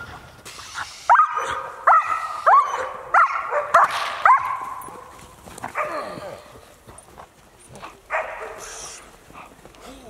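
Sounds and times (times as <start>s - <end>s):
dog barking: 1.1s - 5.1s, 8.1s - 8.7s.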